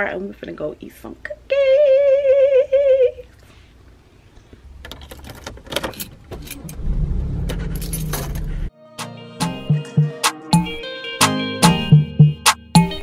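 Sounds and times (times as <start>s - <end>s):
car engine starting and running: 4.8s - 8.7s
keys jangling: 7.5s - 8.6s.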